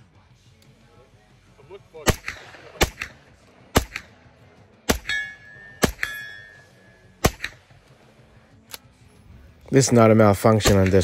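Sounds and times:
gunshots: 0:02.0 - 0:04.2, 0:04.8 - 0:06.3, 0:07.2 - 0:07.8, 0:10.5 - 0:11.0
bullet smack downrange: 0:02.1 - 0:04.2, 0:04.9 - 0:06.3, 0:07.2 - 0:07.8, 0:10.6 - 0:11.0
steel target ringing: 0:04.9 - 0:07.1.

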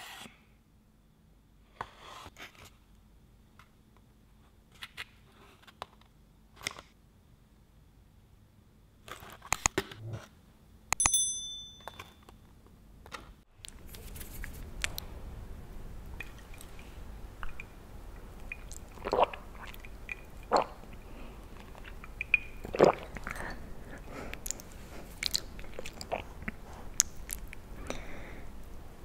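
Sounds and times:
bell-like ding: 0:11.0 - 0:12.2
mouth sounds and sips: 0:18.5 - 0:28.1.

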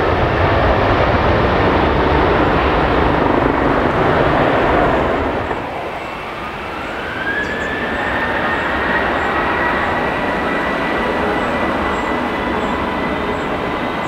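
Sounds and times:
jet climbing after takeoff: 0:00.0 - 0:14.0
jet engines spooling up: 0:00.0 - 0:14.0.

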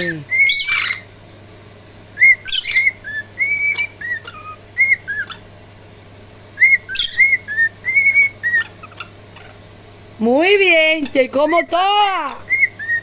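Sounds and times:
cockatiel whistling: 0:00.0 - 0:01.0, 0:02.2 - 0:05.4, 0:06.6 - 0:09.6, 0:12.5 - 0:13.0.

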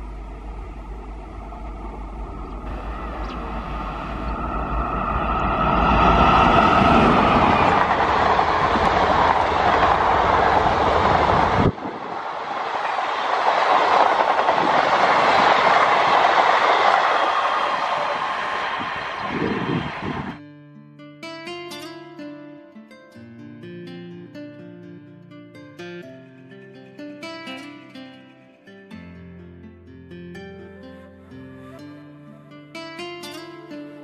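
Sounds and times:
electric train approaching: 0:00.0 - 0:20.4
train wheels on rails: 0:00.6 - 0:20.4.

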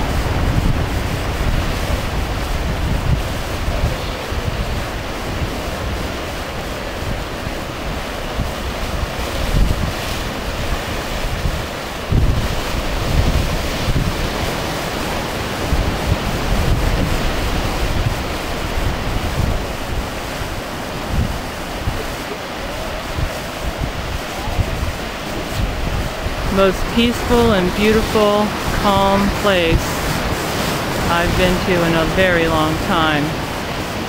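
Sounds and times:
surf breaking on beach: 0:00.0 - 0:34.0
wind buffeting microphone: 0:00.0 - 0:34.0.

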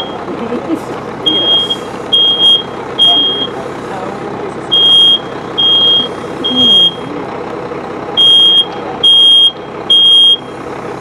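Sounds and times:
smoke alarm beeping: 0:01.3 - 0:03.5, 0:04.7 - 0:07.1, 0:08.2 - 0:10.5.

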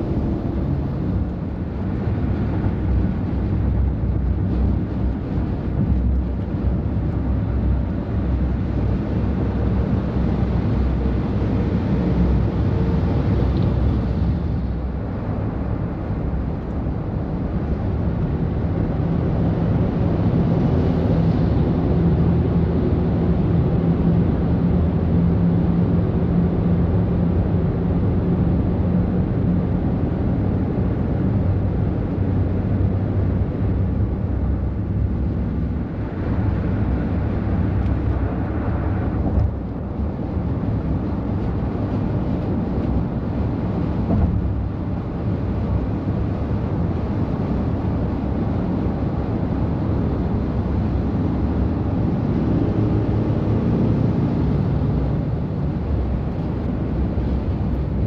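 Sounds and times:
truck diesel engines rumbling: 0:00.0 - 0:58.0.

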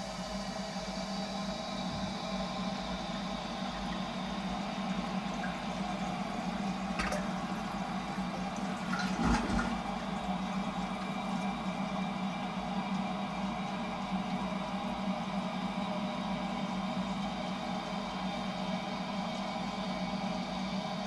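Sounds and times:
low hum and faint whine: 0:00.0 - 0:21.0
water hissing through fill valve: 0:01.1 - 0:13.2
loud clunk: 0:07.0 - 0:07.3, 0:08.9 - 0:09.8.

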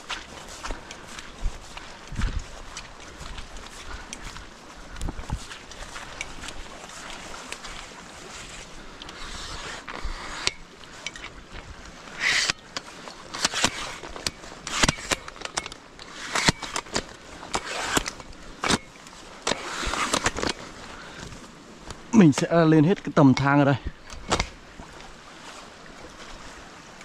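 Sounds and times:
steady background hiss: 0:05.6 - 0:27.0.

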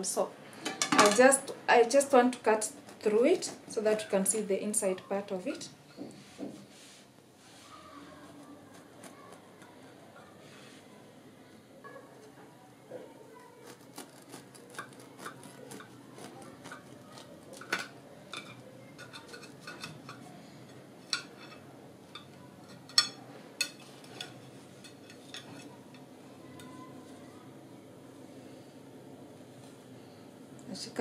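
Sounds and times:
bread knife cutting bread: 0:13.6 - 0:17.9.

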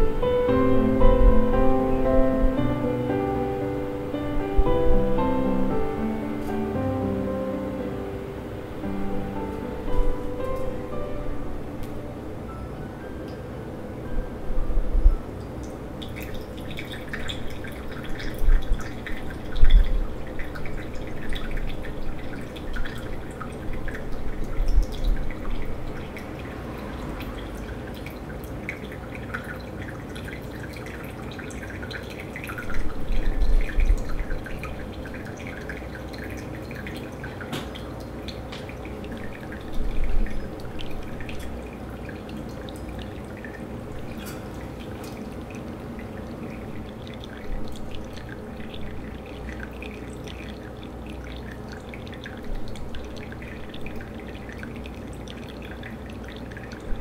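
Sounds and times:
coffee dripping into cup: 0:15.4 - 0:57.0
hot water pouring onto coffee: 0:16.0 - 0:57.0.

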